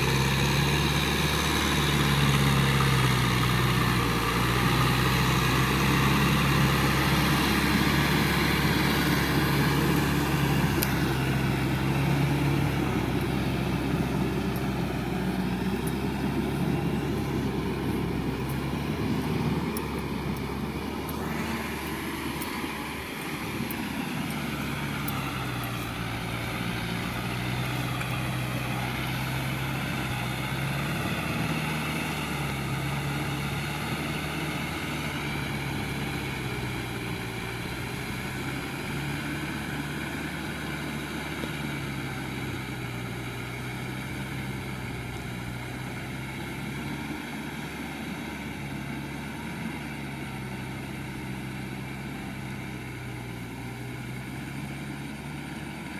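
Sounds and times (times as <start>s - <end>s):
tractor diesel engine running: 0.0s - 55.9s.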